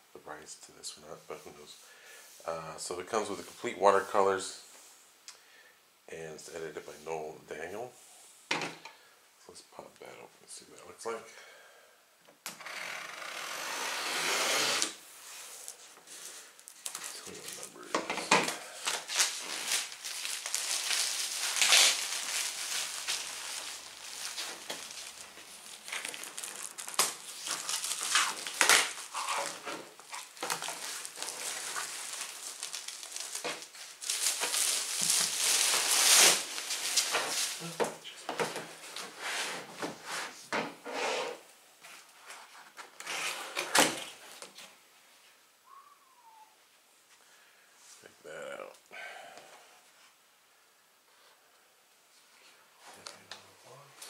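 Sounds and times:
plastic wrap tearing and crinkling: 16.6 - 38.0.

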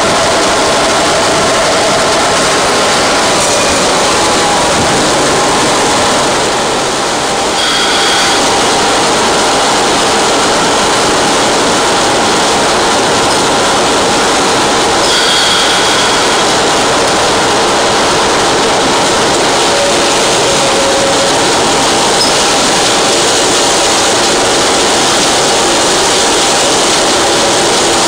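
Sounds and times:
diesel locomotive engine: 0.0 - 28.0
wheels on rails: 0.0 - 28.0
high squeal: 1.6 - 9.7, 15.0 - 16.9.

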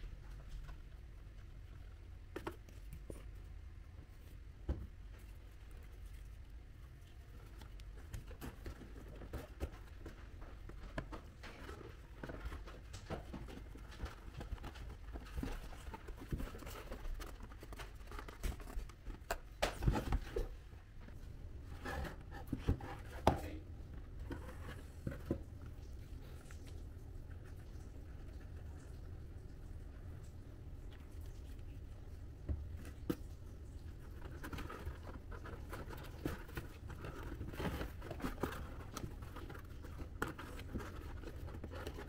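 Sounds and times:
low steady hum: 0.0 - 42.0
cardboard being handled: 0.1 - 25.4, 34.0 - 42.0.

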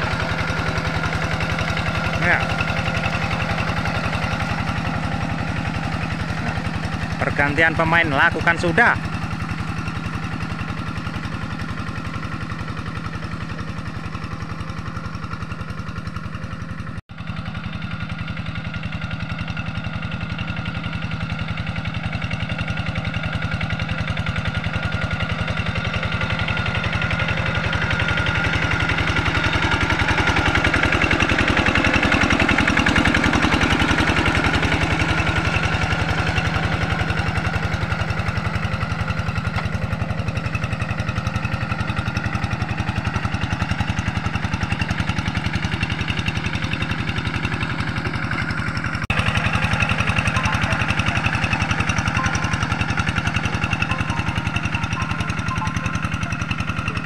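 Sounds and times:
diesel engine running under load: 0.0 - 57.0.

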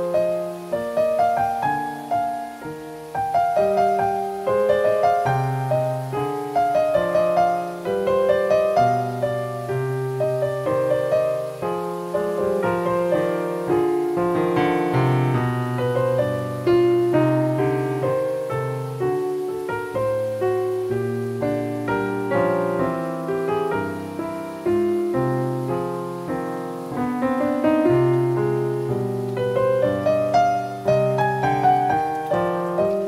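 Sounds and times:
piano music: 0.0 - 33.0.

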